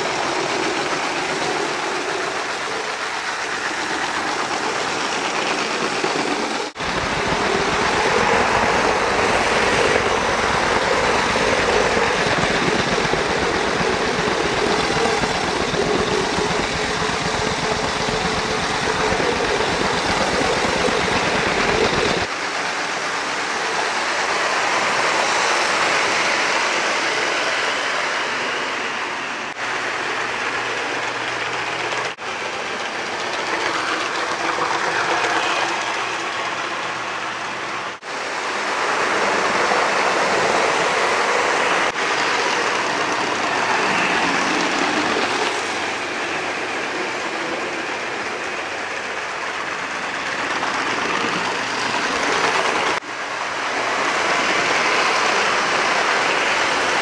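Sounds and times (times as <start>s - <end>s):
toy train wheels rattling: 0.3s - 22.3s.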